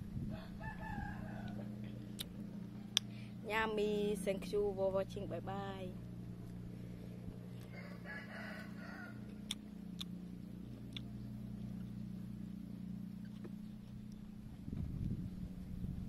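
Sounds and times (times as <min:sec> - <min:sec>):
steady low hum: 0:00.0 - 0:16.0
rooster crowing: 0:00.3 - 0:01.8, 0:07.7 - 0:09.4.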